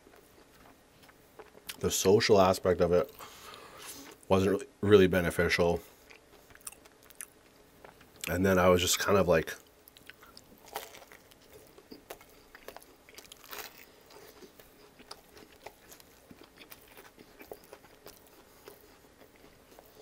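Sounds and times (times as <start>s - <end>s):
chewing sandwich with crunches: 0.0s - 1.8s, 6.0s - 8.4s, 9.6s - 20.0s.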